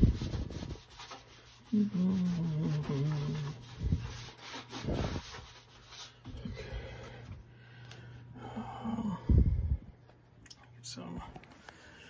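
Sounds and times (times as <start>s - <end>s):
cloth rubbing on metal: 0.0s - 6.2s.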